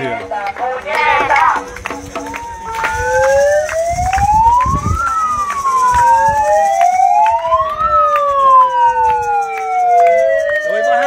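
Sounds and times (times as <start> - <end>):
sharp claps: 0.1 - 11.0
siren wailing: 2.2 - 11.0.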